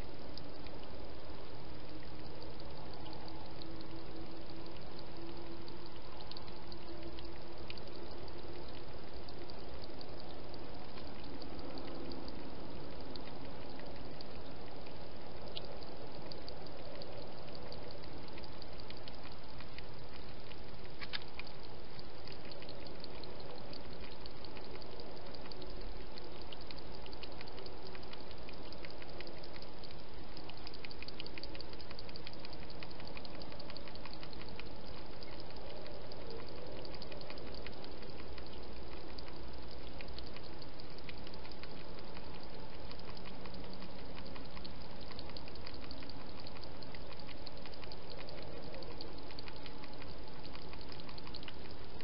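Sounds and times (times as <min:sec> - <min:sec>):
faint rapid clicks: 0:00.0 - 0:52.0
microphone hiss: 0:00.0 - 0:52.0.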